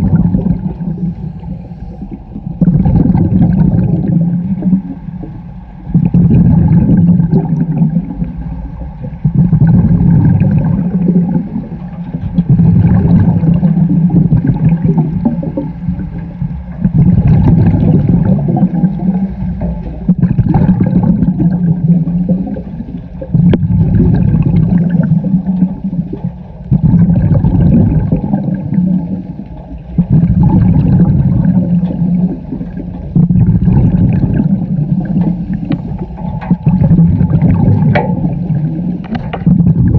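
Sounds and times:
exhaled bubbles gurgling: 0:00.0 - 0:39.9
scuba regulator breathing: 0:00.9 - 0:02.6, 0:18.8 - 0:20.1, 0:34.9 - 0:36.4.

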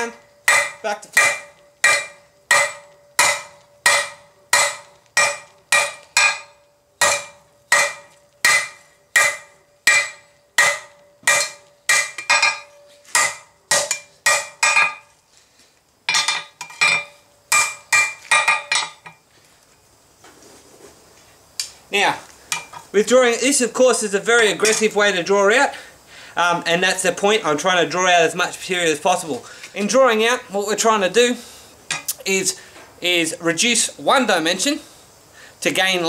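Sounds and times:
anvil ringing: 0:00.0 - 0:15.1
hammer clanging on steel: 0:00.0 - 0:15.1, 0:16.1 - 0:19.2, 0:24.6 - 0:25.0.

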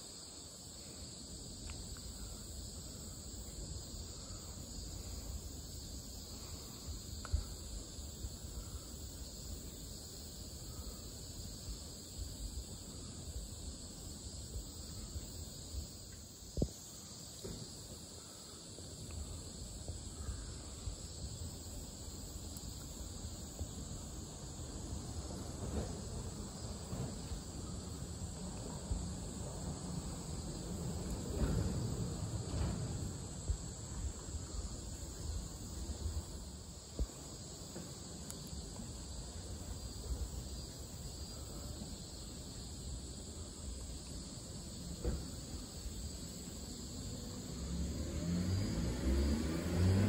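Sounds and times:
distant traffic rumble: 0:18.5 - 0:40.9, 0:43.8 - 0:50.0
vehicle engine revving: 0:47.4 - 0:50.0.

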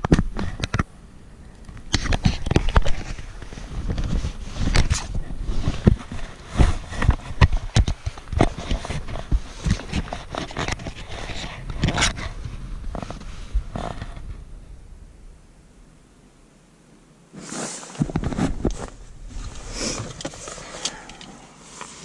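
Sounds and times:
fingers rubbing on camera: 0:01.9 - 0:14.3.

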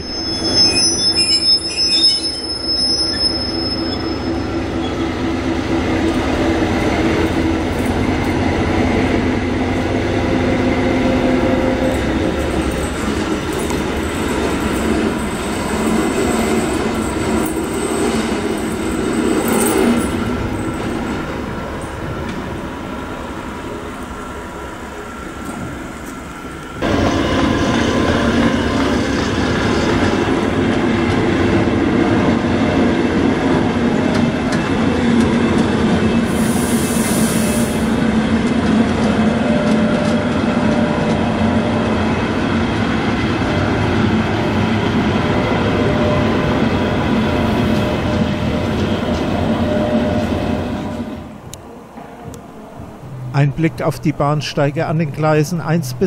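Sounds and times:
high wheel squeal: 0:00.0 - 0:05.3, 0:11.5 - 0:21.3, 0:36.0 - 0:38.0
diesel locomotive engine running: 0:02.4 - 0:56.0.

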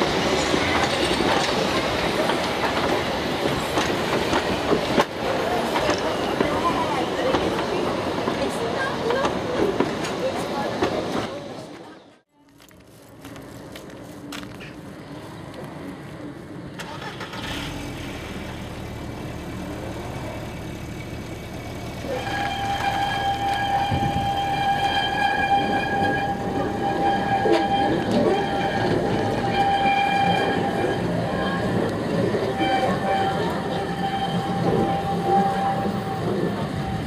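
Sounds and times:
tramcar rumbling past: 0:00.0 - 0:12.0, 0:13.2 - 0:37.0
steel wheels squealing: 0:22.0 - 0:37.0.

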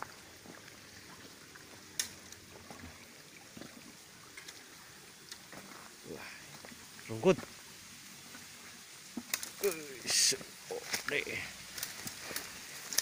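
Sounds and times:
faint steady hiss: 0:00.0 - 0:13.0
sharp twig crack: 0:01.9 - 0:02.2, 0:10.8 - 0:13.0.

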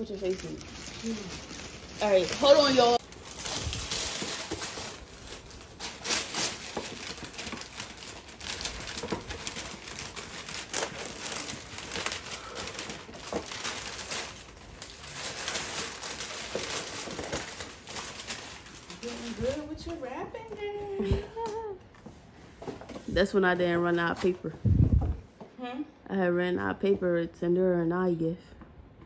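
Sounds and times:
wrapping paper tearing and crumpling: 0:00.0 - 0:19.9.

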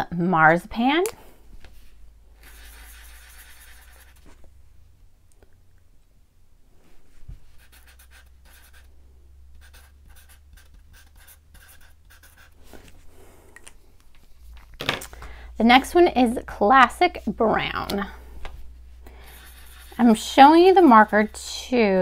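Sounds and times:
marker scratching on paper: 0:02.4 - 0:04.3, 0:07.6 - 0:08.9, 0:09.6 - 0:12.9, 0:19.2 - 0:21.7.

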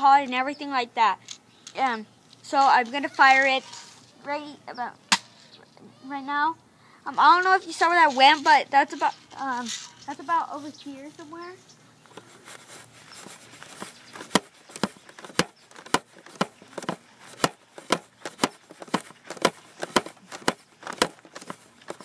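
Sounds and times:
footsteps walking: 0:07.5 - 0:22.0.

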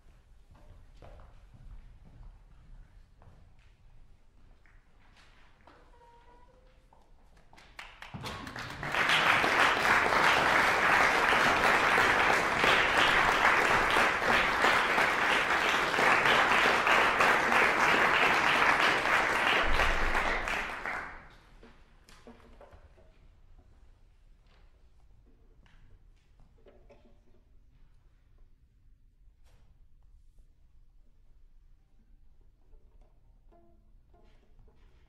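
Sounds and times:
audience applauding: 0:07.7 - 0:21.4.

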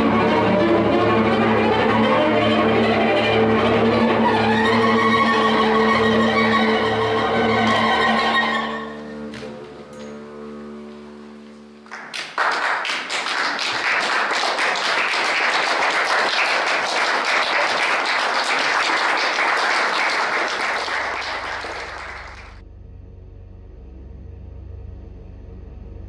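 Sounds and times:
audience applause: 0:11.8 - 0:22.6.

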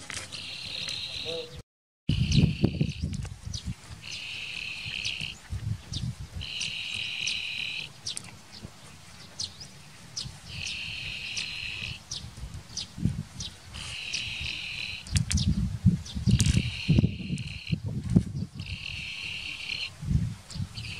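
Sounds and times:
insect buzzing: 0:02.1 - 0:03.1, 0:04.0 - 0:05.4, 0:06.4 - 0:08.0, 0:10.5 - 0:12.1, 0:13.7 - 0:15.2, 0:16.3 - 0:17.8, 0:18.6 - 0:19.9.

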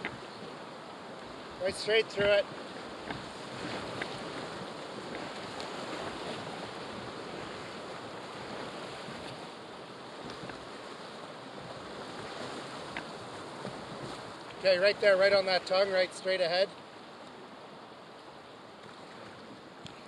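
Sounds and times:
river rapids rushing: 0:00.0 - 0:09.0
faint clicks: 0:19.8 - 0:20.0.

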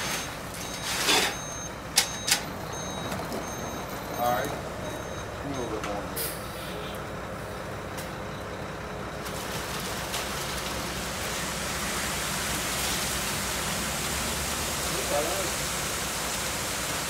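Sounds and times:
truck engine low rumble: 0:00.0 - 0:17.0
wet concrete rushing down chute: 0:09.2 - 0:17.0.

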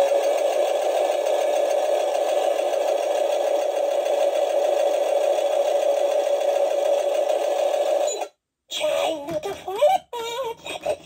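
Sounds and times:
sewing machine whir: 0:00.0 - 0:08.4.

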